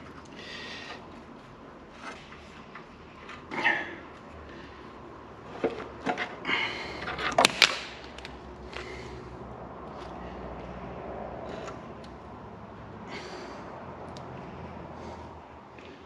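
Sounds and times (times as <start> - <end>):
metal engine parts clunking: 5.4 - 8.4.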